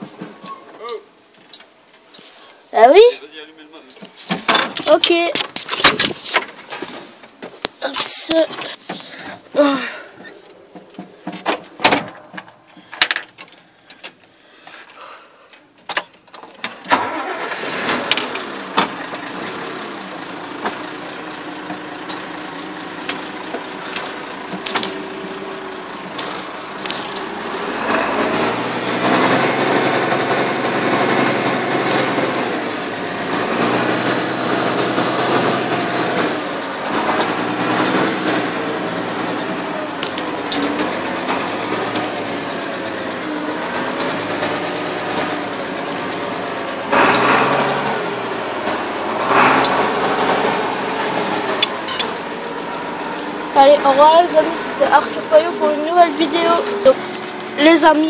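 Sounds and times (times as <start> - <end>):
tractor diesel engine running: 4.3 - 58.0
handling knocks and clicks: 10.5 - 15.0.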